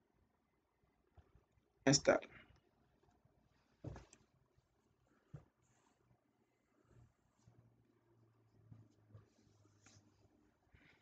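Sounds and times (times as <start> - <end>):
soft thump: 3.8 - 4.2.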